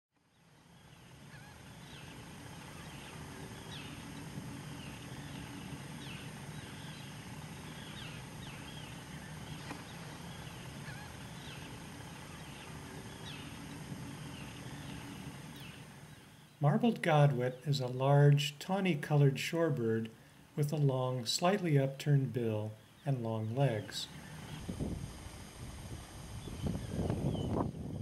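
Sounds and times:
low background rush: 0.2 - 28.0
godwits calling: 0.4 - 18.2, 22.5 - 24.6.

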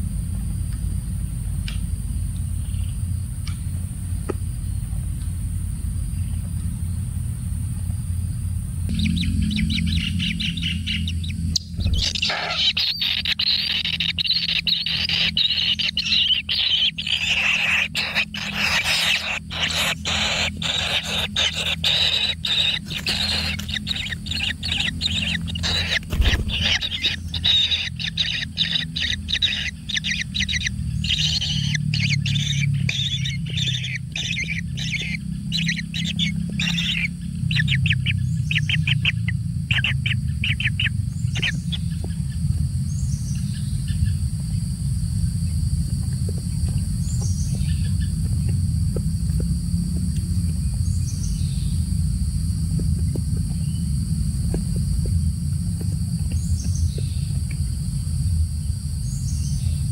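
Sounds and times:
low rumble: 0.0 - 12.3
high drone: 8.8 - 33.4
bird nestling begging calls: 8.9 - 38.8.

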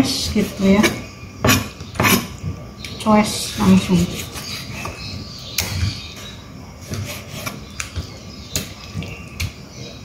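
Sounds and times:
knife cutting and scraping: 0.3 - 2.3.

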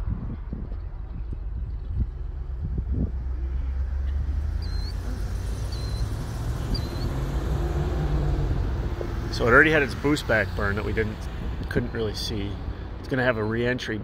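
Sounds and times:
low outdoor rumble: 0.0 - 14.0
short high chirps: 5.7 - 6.1.

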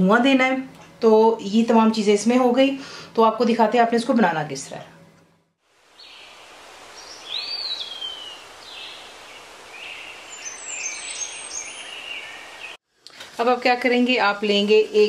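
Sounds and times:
background hiss: 5.6 - 15.0
high whistled chirps: 9.7 - 12.8.

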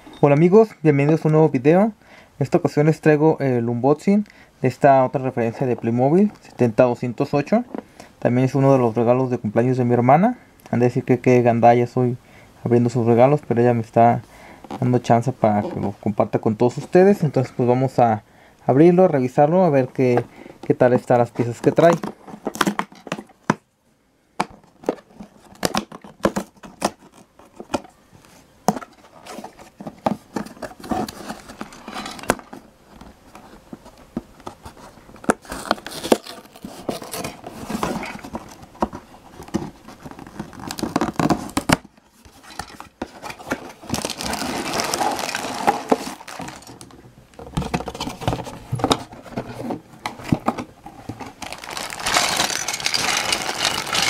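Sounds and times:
plastic bags crinkling: 42.5 - 47.0, 50.2 - 54.0.

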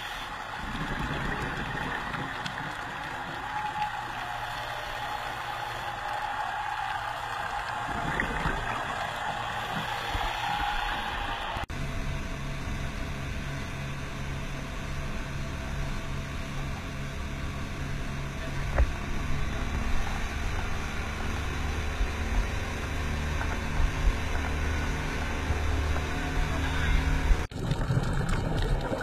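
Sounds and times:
wind and water rushing: 0.0 - 5.8, 7.6 - 11.7
outboard motor running: 0.0 - 29.0.

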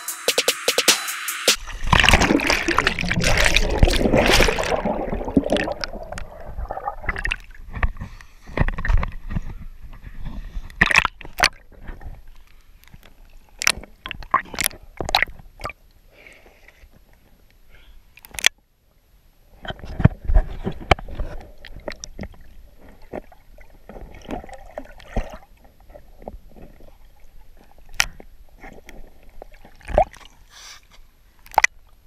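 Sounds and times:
muffled underwater gurgling: 1.6 - 7.8
water sloshing and splashing: 1.6 - 15.8, 19.6 - 32.0.

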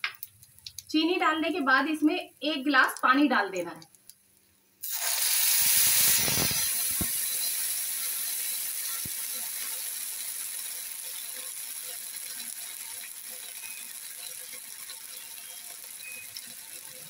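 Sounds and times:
water sizzling in hot oil: 3.8 - 17.0.

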